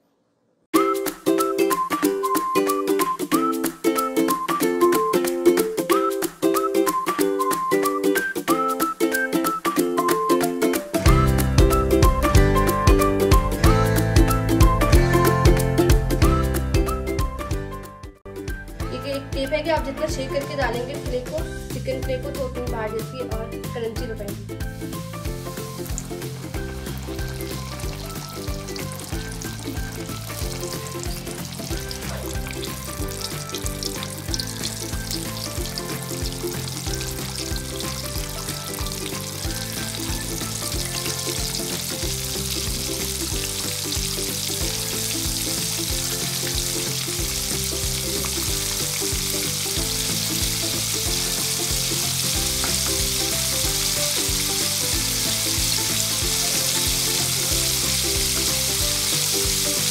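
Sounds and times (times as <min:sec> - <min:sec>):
background music: 0:00.8 - 0:59.9
food sizzling in hot oil: 0:24.6 - 0:59.9.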